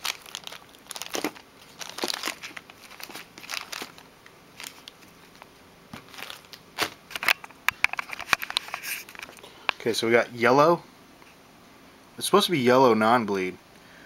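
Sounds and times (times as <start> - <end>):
plastic packaging crinkling: 0.0 - 9.5.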